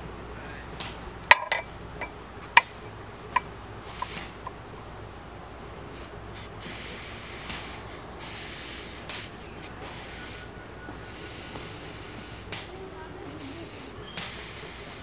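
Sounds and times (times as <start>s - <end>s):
water sizzling on hot metal: 5.9s - 15.0s.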